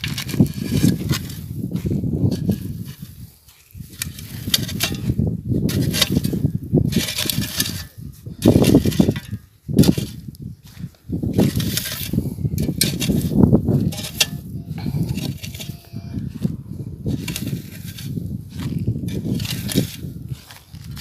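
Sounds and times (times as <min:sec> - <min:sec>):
spade scraping dry soil: 0:00.0 - 0:21.0.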